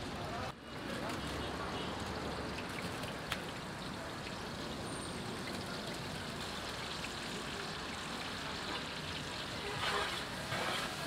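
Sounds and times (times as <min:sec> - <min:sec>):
onions sizzling in hot oil: 0:03.8 - 0:11.0.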